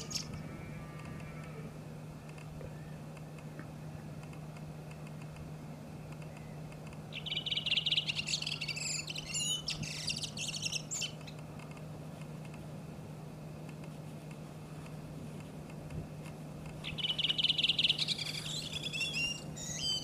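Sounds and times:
bird singing: 0.0 - 1.6, 2.6 - 3.1, 6.2 - 11.4, 16.8 - 20.0
low hum: 0.0 - 20.0.

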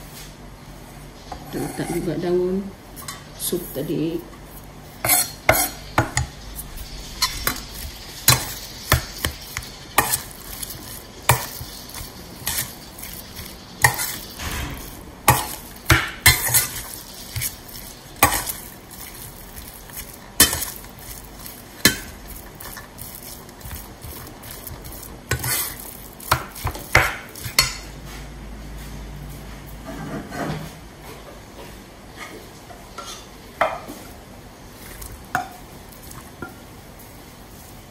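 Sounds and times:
metal spoon scraping steel bowl: 1.3 - 2.2, 5.0 - 27.8.

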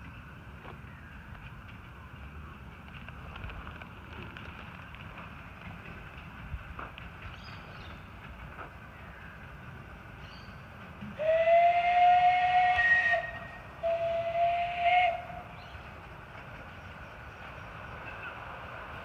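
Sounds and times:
steam whistle blasts: 11.2 - 15.5.

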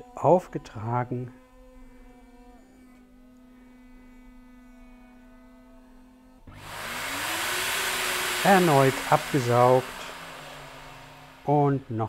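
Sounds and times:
machine humming quietly: 6.5 - 12.0
motor tone rising in pitch: 6.5 - 12.0
vacuum suction rushing hiss: 6.5 - 12.0.

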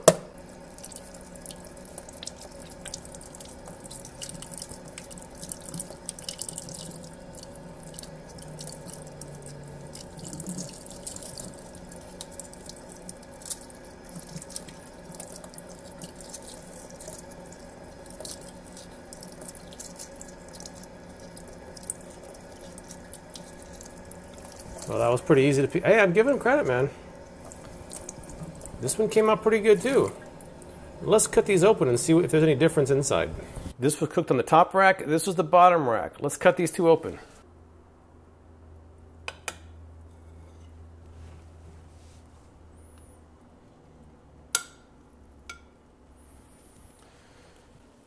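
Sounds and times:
tap water running into sink: 0.0 - 31.6.

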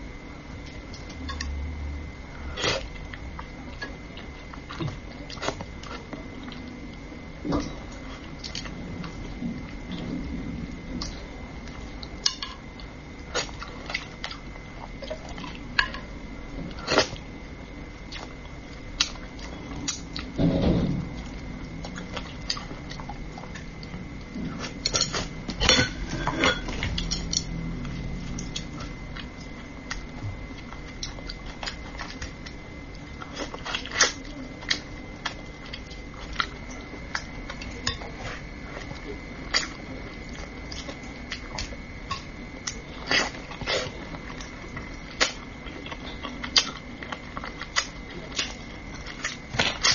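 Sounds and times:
low muffled rumble: 0.0 - 16.8, 18.7 - 36.3.

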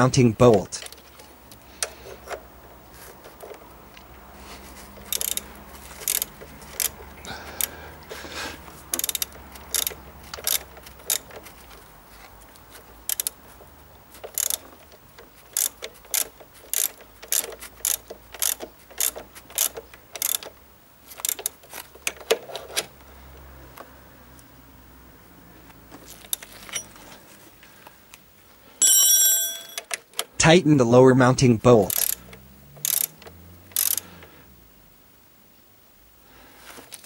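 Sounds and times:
ratchet wrench clicking: 5.0 - 7.0, 8.9 - 11.4, 13.1 - 13.4, 14.2 - 20.5, 21.1 - 21.6, 31.9 - 34.0.

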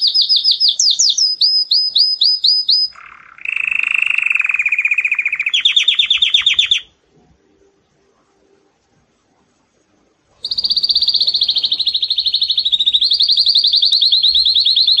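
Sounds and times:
canary singing trill: 0.0 - 7.0, 10.4 - 15.0.

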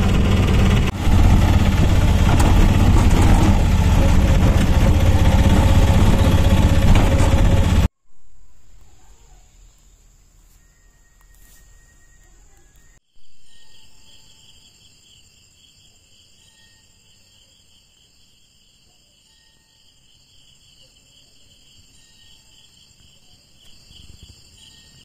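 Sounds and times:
crickets chirring: 8.7 - 25.0.

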